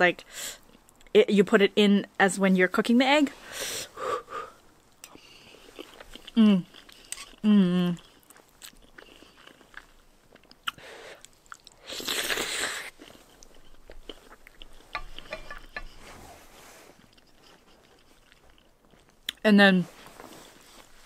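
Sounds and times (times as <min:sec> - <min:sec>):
chewing: 0:05.0 - 0:16.0, 0:16.9 - 0:19.4.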